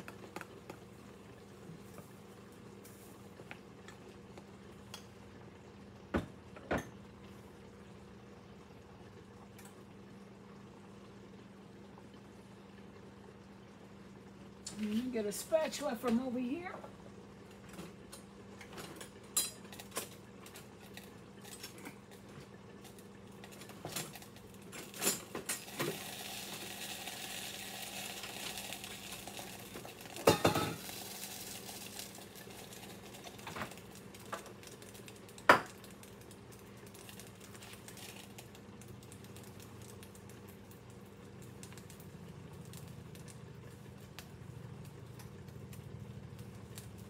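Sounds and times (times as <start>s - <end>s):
frying sizzle: 0.0s - 47.0s
cookware clattering: 30.2s - 30.8s.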